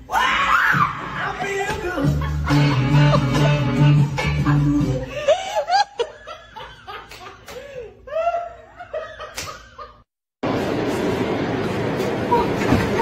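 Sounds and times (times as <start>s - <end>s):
background music with bass: 0.7s - 5.2s
person laughing high-pitched: 1.4s - 3.8s.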